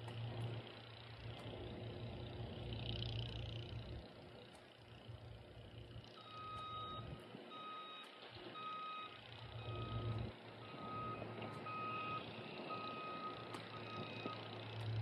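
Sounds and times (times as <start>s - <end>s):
reversing alarm beeping: 6.2s - 15.0s.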